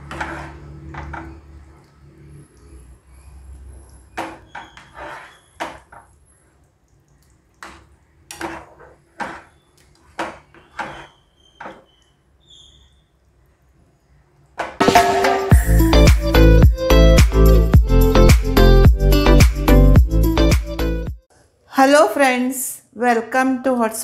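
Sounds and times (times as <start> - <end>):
ladle stirring thick curry: 3.3 - 12.3.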